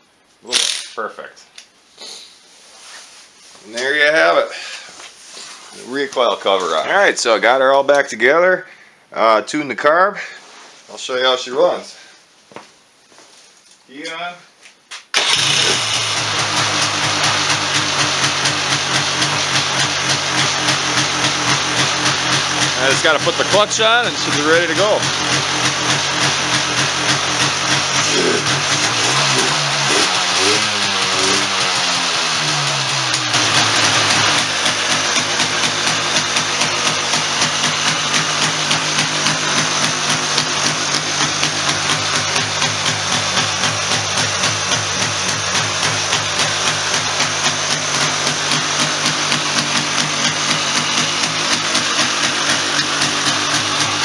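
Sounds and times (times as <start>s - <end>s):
two-stroke engine revving: 15.2s - 54.0s.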